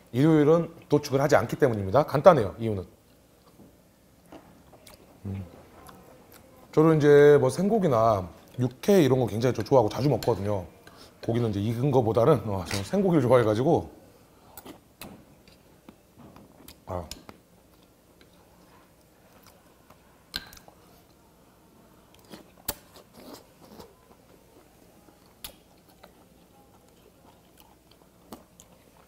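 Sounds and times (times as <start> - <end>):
chewing: 4.2 - 6.5, 22.1 - 29.0.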